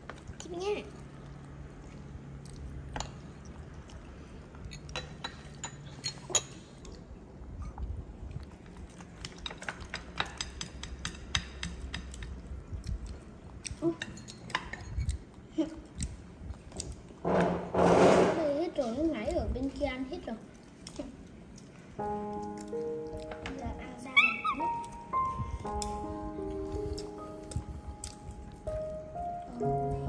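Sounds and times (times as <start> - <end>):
cutlery clinking on ceramic bowls: 4.7 - 7.0, 9.2 - 12.3, 13.9 - 15.2.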